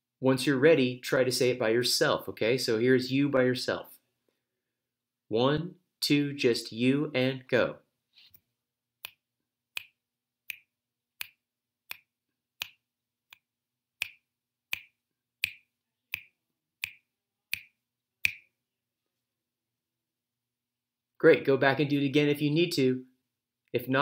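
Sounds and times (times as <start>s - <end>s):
finger snaps: 9.0s - 9.2s, 9.8s - 18.5s.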